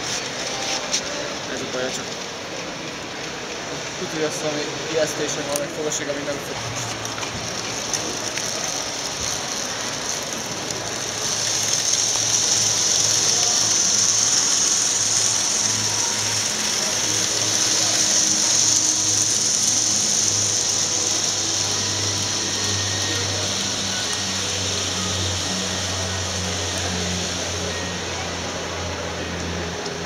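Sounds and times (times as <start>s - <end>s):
high hiss: 0.0s - 30.0s
model trains whirring: 0.0s - 30.0s.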